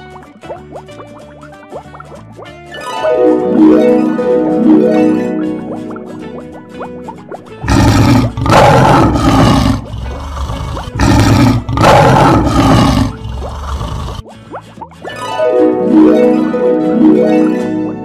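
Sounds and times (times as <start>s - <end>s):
faint plucked music: 0.0s - 18.0s
lion roar: 7.6s - 14.2s.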